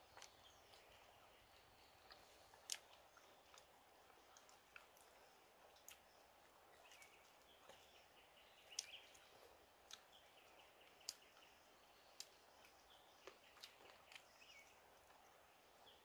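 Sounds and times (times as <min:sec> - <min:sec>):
small bird chirps: 0:05.9 - 0:16.0.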